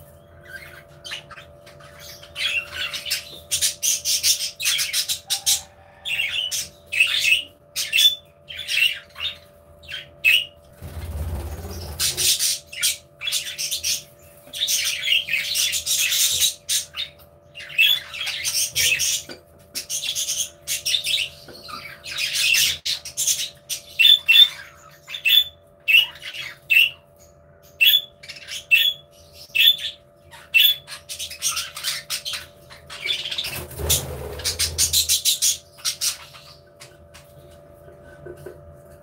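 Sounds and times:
budgerigars chattering and chirping: 0.0 - 38.6.

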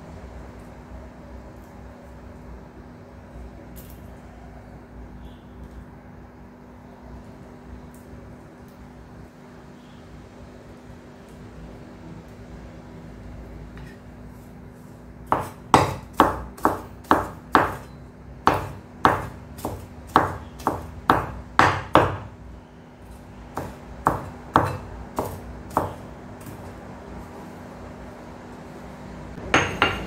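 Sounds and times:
cleaver chopping on wooden board: 15.3 - 22.3, 23.6 - 26.6.

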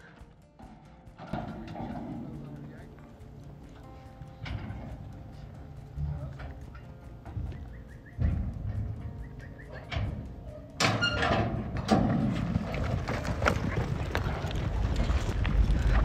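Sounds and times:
horses galloping on dirt: 0.0 - 16.0
metal chute clanging open: 4.3 - 12.6.

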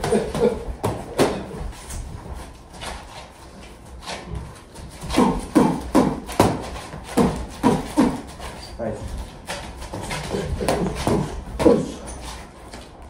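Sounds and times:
boxing gloves thudding: 0.0 - 1.6, 4.8 - 8.3.

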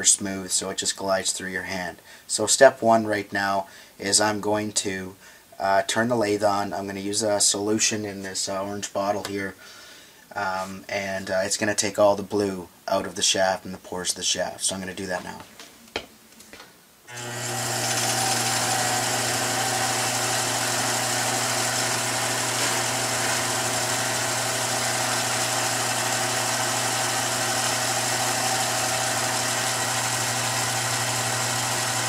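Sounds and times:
lathe motor hum and whir: 17.1 - 32.0.

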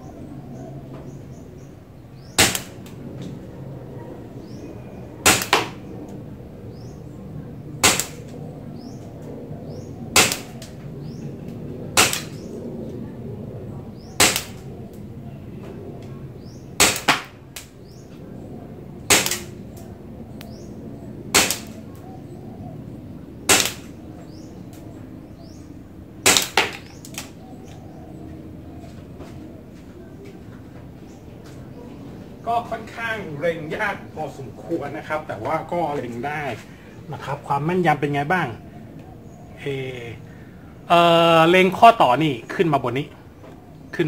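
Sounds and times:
bb pistol shots cracking: 2.2 - 3.0, 5.2 - 5.9, 7.8 - 8.4, 10.1 - 10.8, 11.9 - 12.5, 14.0 - 14.7, 16.8 - 17.7, 19.1 - 19.6, 21.3 - 21.8, 23.4 - 24.0, 26.2 - 27.4.

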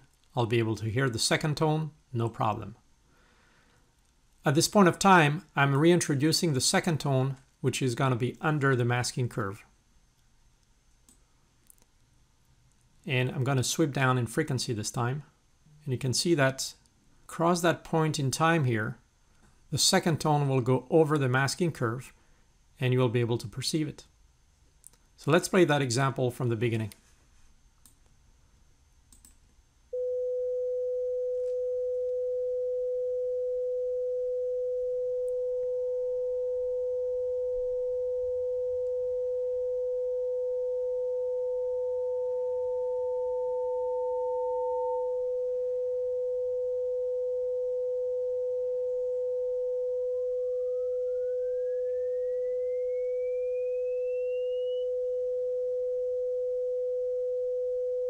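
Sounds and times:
steady test tone: 29.9 - 58.0
higher sine tone gliding upward: 41.4 - 57.9.

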